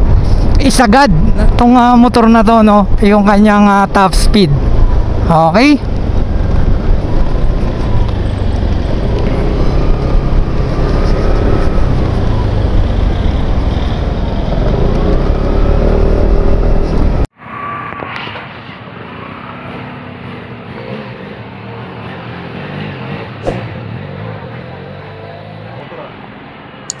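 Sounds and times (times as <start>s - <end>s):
wind rumble on microphone: 0.0s - 3.2s, 4.2s - 17.3s
street traffic: 0.0s - 27.0s
scooter engine: 4.8s - 17.2s.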